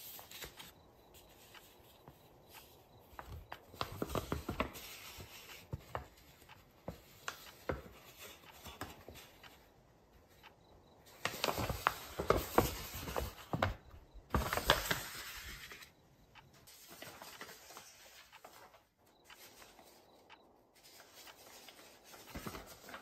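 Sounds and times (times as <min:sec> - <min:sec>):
paper rustling and crinkling: 0:00.0 - 0:01.8, 0:11.2 - 0:15.9, 0:16.7 - 0:18.8, 0:20.8 - 0:23.0
small clicks: 0:14.0 - 0:23.0.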